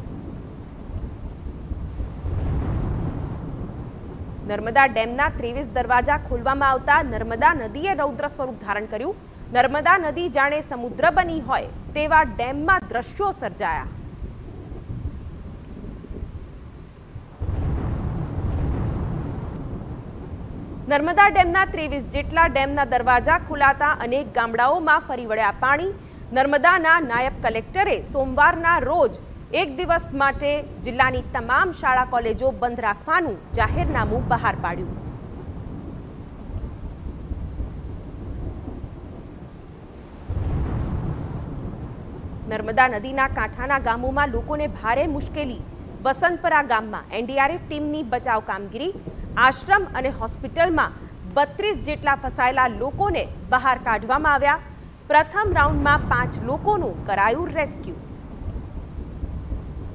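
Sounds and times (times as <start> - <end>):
loud thunderclap: 0.0 - 7.9, 13.8 - 24.0, 33.4 - 46.6, 54.9 - 59.9
rain: 0.0 - 59.9
thunder rumble: 0.0 - 59.9.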